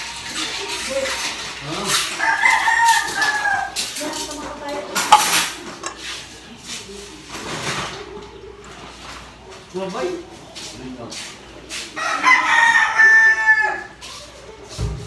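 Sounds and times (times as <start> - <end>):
metal spoon scraping a tin can: 0.7 - 6.3
rooster crowing: 2.1 - 3.9, 12.0 - 14.0.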